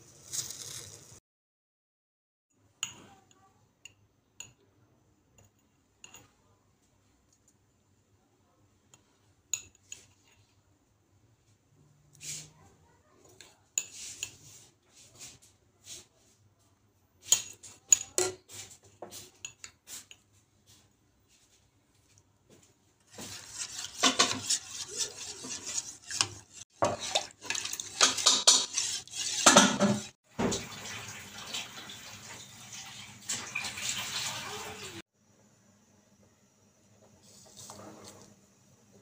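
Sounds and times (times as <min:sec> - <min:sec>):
spoon stirring and scraping saucepan: 0:08.9 - 0:10.7, 0:12.1 - 0:30.6, 0:37.1 - 0:39.0
liquid swishing: 0:23.0 - 0:30.2.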